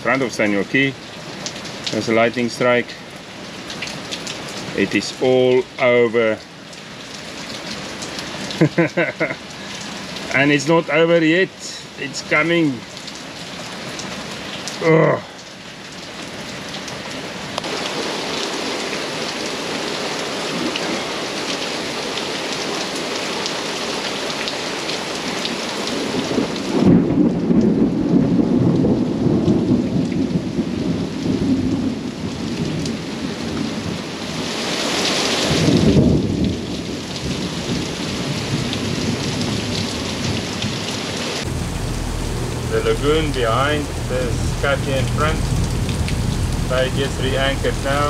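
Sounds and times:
heavy rain pouring: 0.0s - 48.0s
thunder rumbling: 41.4s - 48.0s.

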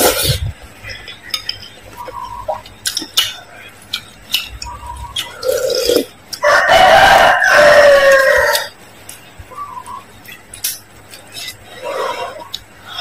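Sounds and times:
rooster crowing: 6.4s - 8.8s.

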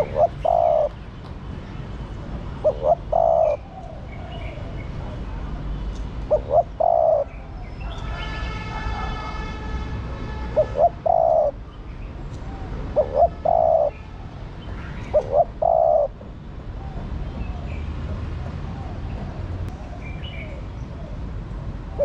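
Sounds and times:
dove cooing: 0.0s - 1.0s, 2.6s - 5.2s, 6.3s - 7.7s, 10.6s - 11.6s, 12.5s - 14.0s, 15.1s - 16.2s.

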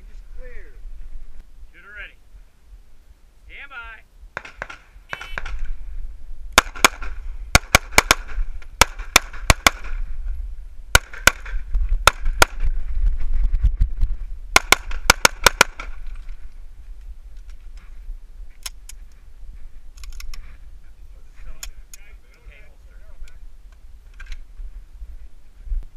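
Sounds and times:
pistol gunshots: 4.4s - 5.7s, 6.6s - 10.0s, 10.9s - 12.6s, 14.5s - 16.0s.

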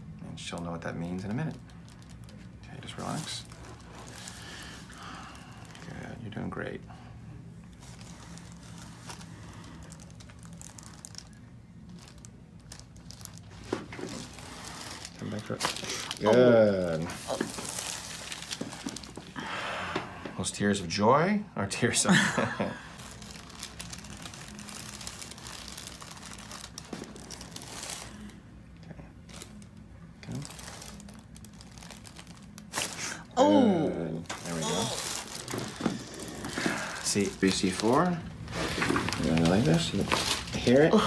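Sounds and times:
steady low hum: 0.0s - 41.0s
paper cover crinkling: 1.4s - 6.0s, 7.7s - 19.3s, 22.4s - 28.4s, 29.3s - 33.2s, 34.2s - 40.9s.

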